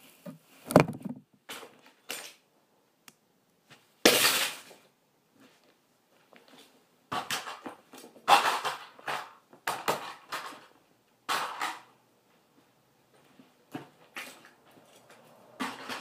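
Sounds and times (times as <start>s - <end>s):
plastic toys clattering and scraping: 0.2s - 2.4s, 6.5s - 12.0s, 13.8s - 16.0s.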